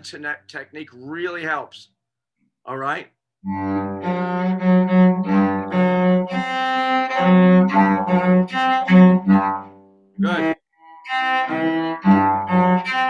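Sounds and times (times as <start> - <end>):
cello being bowed: 3.4 - 13.0.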